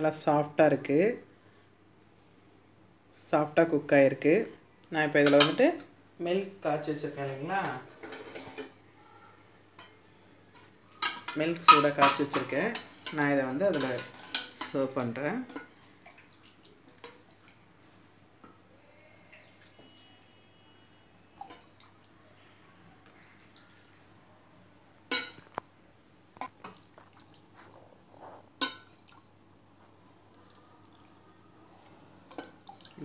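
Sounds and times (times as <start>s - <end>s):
milk dripping and splashing: 15.9s - 17.6s, 26.6s - 27.7s, 30.3s - 31.3s.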